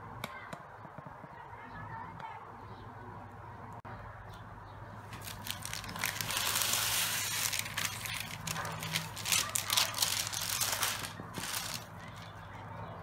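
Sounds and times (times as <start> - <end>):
parchment paper crinkling: 5.1 - 12.6.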